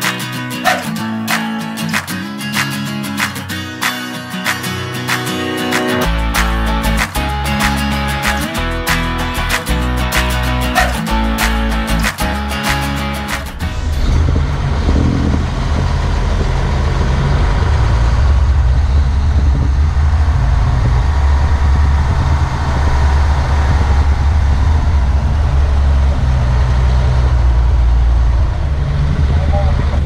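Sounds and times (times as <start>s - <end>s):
diesel engine low rumble: 6.0s - 30.0s.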